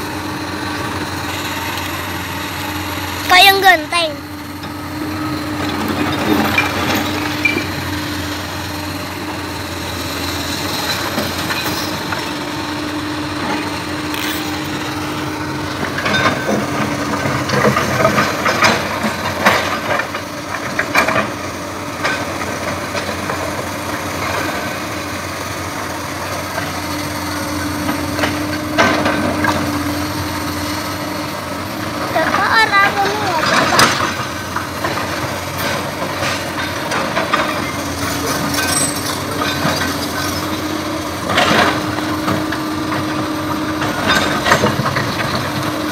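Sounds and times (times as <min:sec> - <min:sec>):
excavator diesel engine: 0:00.0 - 0:45.9
hydraulic whine: 0:04.2 - 0:19.3
metal and stone clanking: 0:33.4 - 0:40.6.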